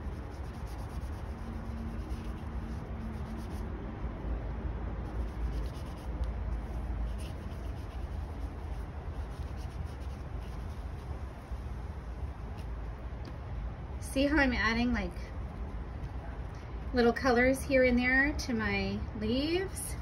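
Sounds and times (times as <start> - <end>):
paintbrush strokes on paper: 0.0 - 3.7, 5.0 - 12.7
steady low hum: 0.0 - 20.0.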